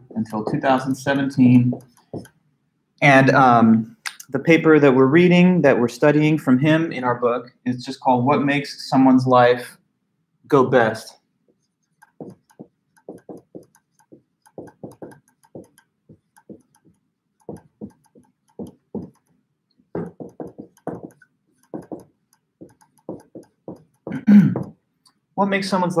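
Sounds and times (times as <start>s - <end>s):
marker squeaking on whiteboard: 0.0s - 2.4s, 11.5s - 19.4s, 20.0s - 24.7s.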